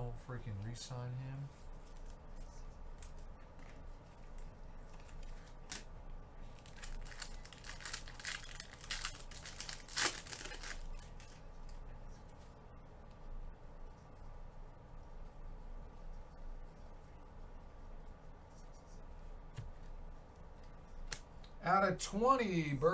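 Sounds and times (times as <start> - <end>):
foil wrapper crinkling: 2.9 - 11.4
foil wrapper ripping: 4.9 - 11.3.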